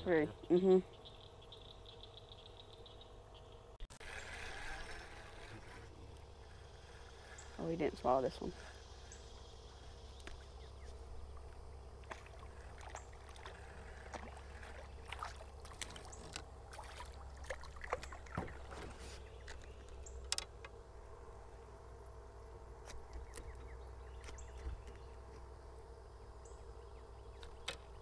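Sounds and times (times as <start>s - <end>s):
steady low hum: 0.0s - 28.0s
small water splashes: 11.4s - 19.6s
clicks and knocks against canoe: 12.0s - 20.8s, 27.4s - 28.0s.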